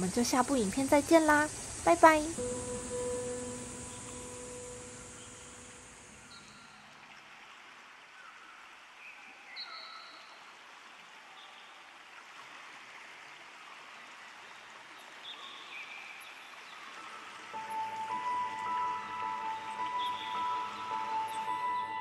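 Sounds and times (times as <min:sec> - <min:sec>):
faint short high notes: 0:02.4 - 0:06.8.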